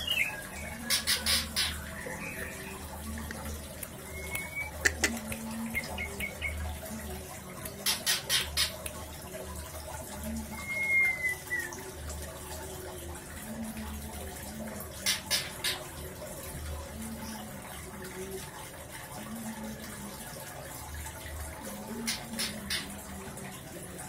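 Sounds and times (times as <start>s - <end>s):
bird whistled calls: 4.0s - 4.8s, 10.6s - 11.7s.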